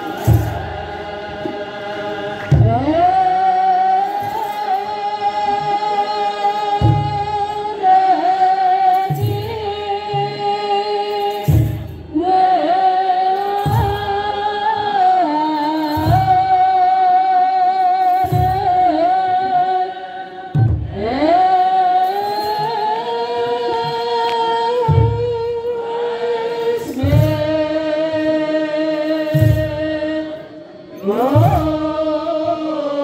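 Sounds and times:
drum strikes: 0.0s - 4.7s, 6.7s - 7.8s, 11.2s - 12.2s, 13.5s - 14.4s, 20.5s - 22.8s, 26.7s - 28.3s, 29.1s - 30.1s, 31.0s - 32.6s
choir singing a hymn in unison: 0.0s - 9.3s, 25.5s - 33.0s.

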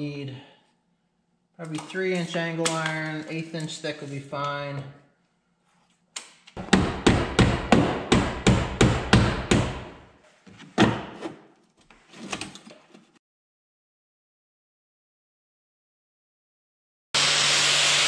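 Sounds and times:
hammer striking sheet metal: 6.6s - 10.0s.

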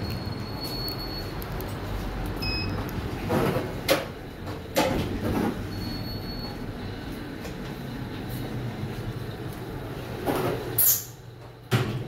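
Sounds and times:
elevator hum: 0.0s - 11.7s.

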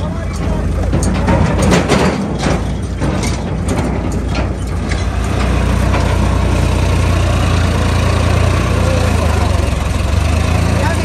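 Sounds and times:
diesel tractor engine idling: 0.0s - 11.0s
clicks and knocks: 0.3s - 6.4s.

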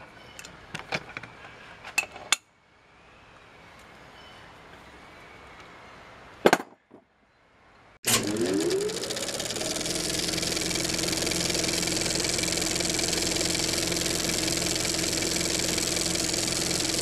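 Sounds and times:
engine idling: 8.1s - 17.0s.

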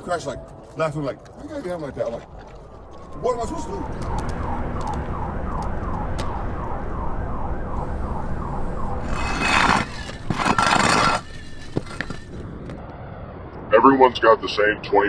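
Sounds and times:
low traffic rumble: 0.0s - 15.0s
distant siren yelping: 2.0s - 10.6s.

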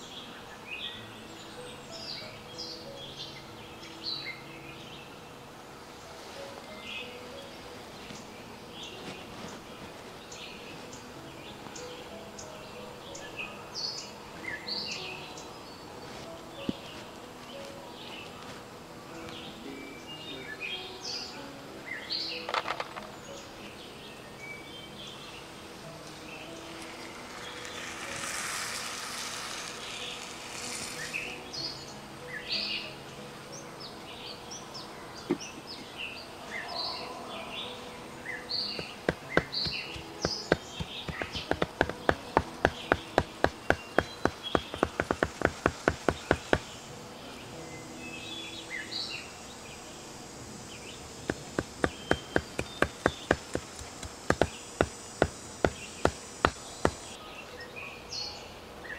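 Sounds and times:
bird chirps: 35.1s - 49.4s, 50.8s - 58.9s
cleaver chopping on wooden block: 38.8s - 46.7s, 51.3s - 57.1s.

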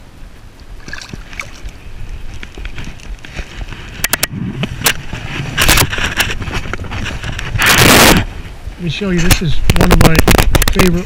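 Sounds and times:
hand rubbing against microphone: 2.2s - 8.6s.

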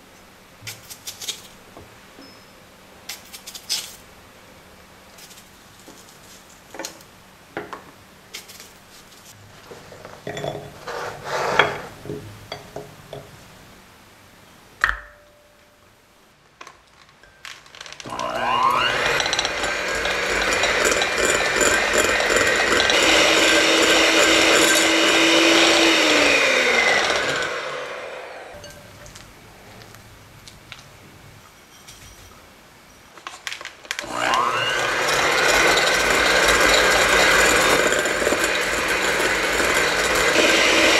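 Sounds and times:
electric hand mixer whine: 18.0s - 28.6s, 34.0s - 40.9s.

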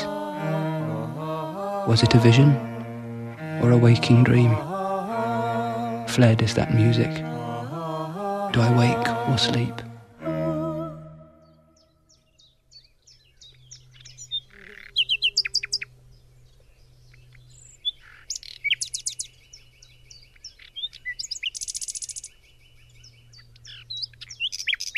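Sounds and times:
songbird singing: 0.0s - 24.9s.

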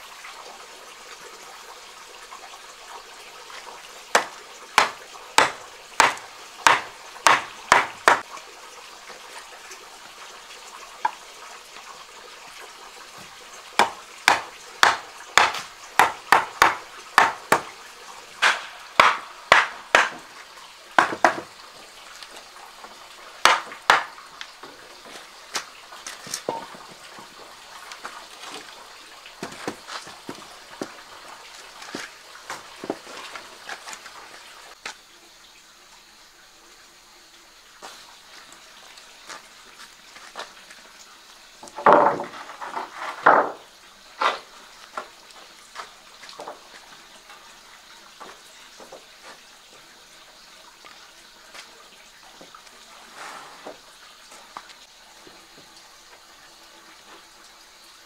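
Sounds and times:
sharp evenly spaced knocks: 4.1s - 8.3s, 13.8s - 17.8s, 18.4s - 20.4s, 21.0s - 21.5s, 23.4s - 24.2s.

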